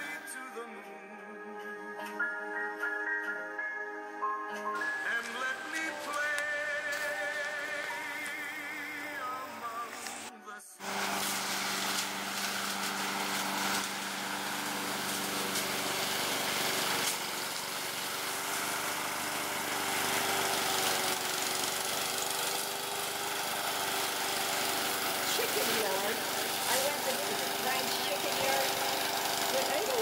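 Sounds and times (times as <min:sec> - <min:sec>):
lawn mower engine running: 0:04.8 - 0:30.0.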